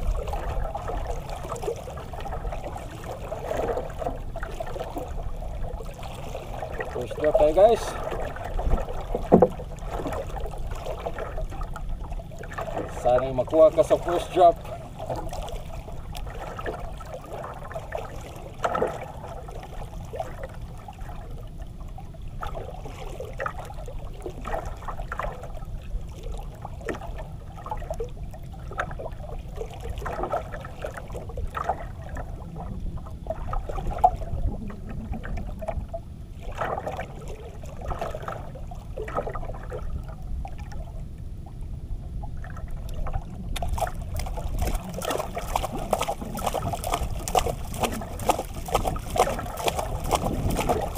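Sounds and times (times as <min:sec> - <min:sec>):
steady low rumble: 0:00.0 - 0:50.9
water lapping against boat hull: 0:00.0 - 0:50.9.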